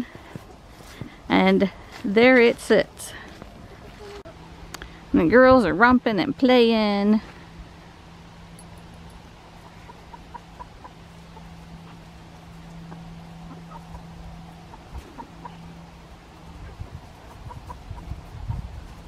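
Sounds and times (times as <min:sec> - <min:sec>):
steady low hum: 0:00.0 - 0:19.0
chicken clucking: 0:09.5 - 0:12.1, 0:12.7 - 0:15.7, 0:16.6 - 0:18.7.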